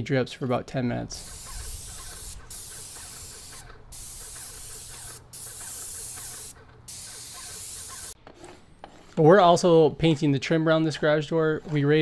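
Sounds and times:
paint sprayer hissing: 0:01.1 - 0:08.2.

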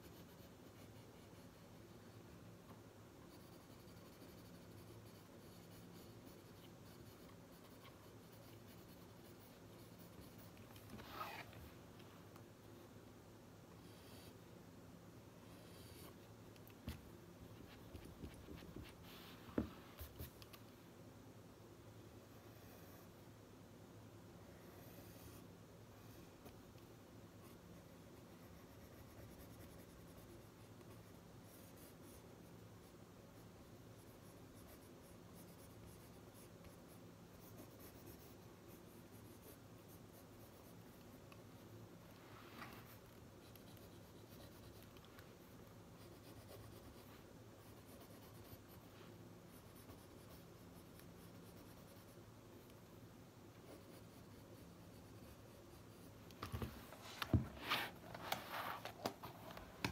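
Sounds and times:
pen scratching on paper: 0:03.3 - 0:11.6, 0:27.4 - 0:32.3, 0:33.4 - 0:41.2, 0:42.7 - 0:52.8, 0:53.6 - 0:56.4.

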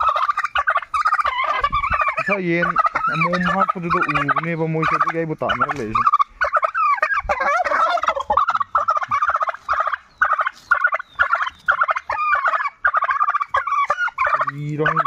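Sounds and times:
turkey gobbling: 0:00.0 - 0:15.0.

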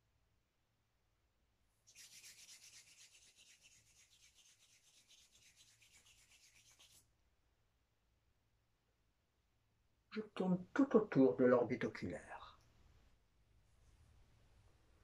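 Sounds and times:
palms rubbing together: 0:01.9 - 0:07.1.

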